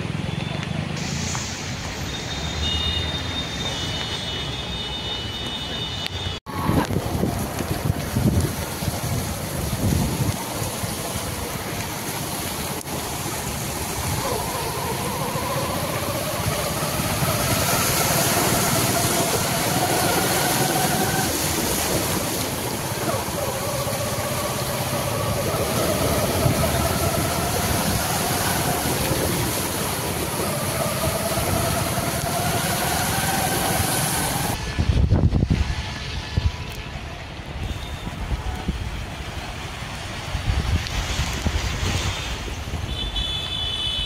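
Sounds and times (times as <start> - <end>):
rushing water: 0.0 - 44.0
wind: 0.0 - 44.0
car engines revving: 12.7 - 34.8.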